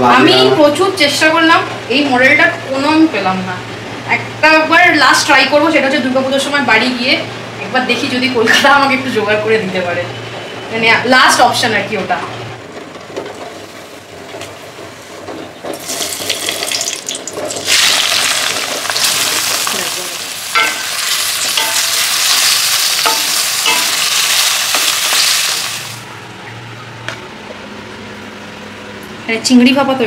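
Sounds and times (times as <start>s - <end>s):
food sizzling in oil: 13.5s - 26.1s.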